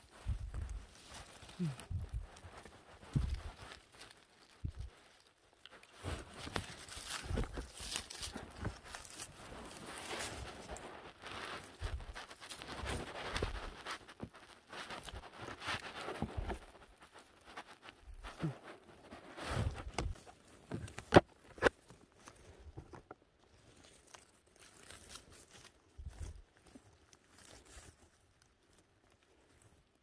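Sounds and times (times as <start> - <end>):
footsteps through undergrowth: 0.0 - 29.9
twigs snapping: 0.1 - 16.8.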